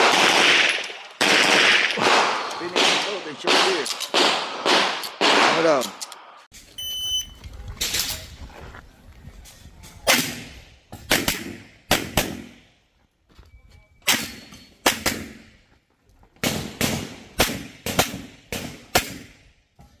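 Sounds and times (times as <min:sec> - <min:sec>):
handgun shots echoing: 0:00.0 - 0:06.2.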